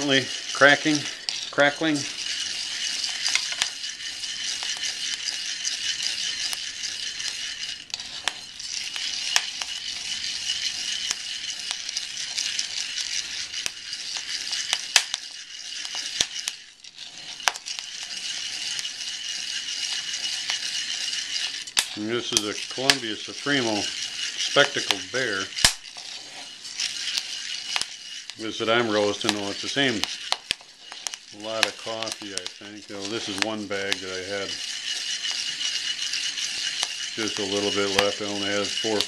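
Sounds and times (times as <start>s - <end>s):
steady hiss: 0.0s - 7.4s, 17.2s - 39.0s
coffee beans rattling in a pan: 0.0s - 39.0s
sharp popping of beans: 0.0s - 39.0s
wooden spoon stirring: 0.0s - 39.0s.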